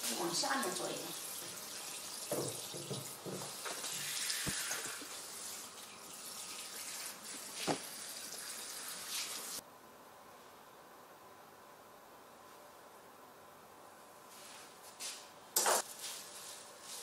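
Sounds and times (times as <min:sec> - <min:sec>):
hand sprayer spraying water: 0:06.8 - 0:08.0.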